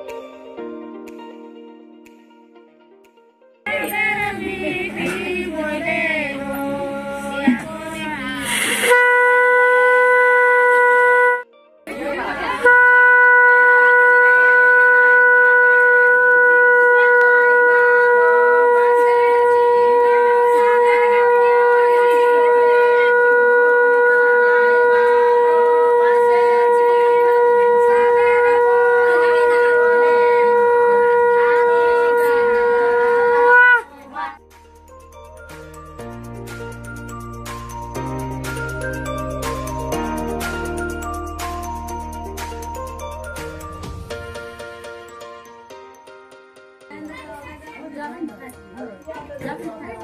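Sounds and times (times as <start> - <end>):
conch shell blown: 3.7 - 11.6, 12.5 - 34.2, 43.9 - 45.6.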